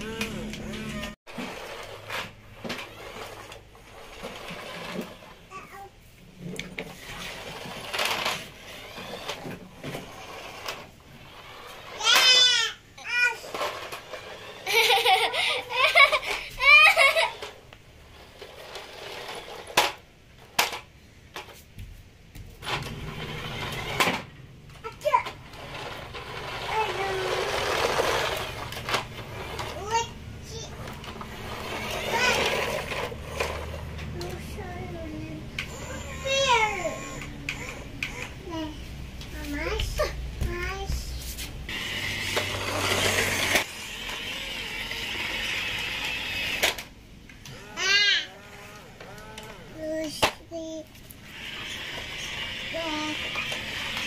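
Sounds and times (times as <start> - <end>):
toy truck electric motor whirring: 0.0 - 20.9, 22.6 - 38.8, 41.7 - 54.0.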